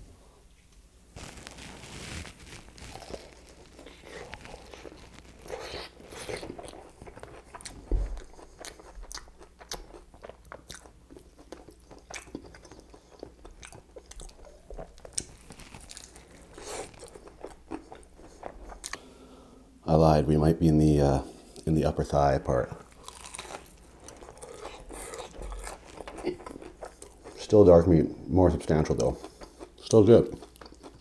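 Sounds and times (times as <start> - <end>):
crunching fried chicken: 1.2 - 19.1, 22.9 - 27.6
chewing: 2.9 - 19.1, 22.9 - 27.4, 28.9 - 31.0.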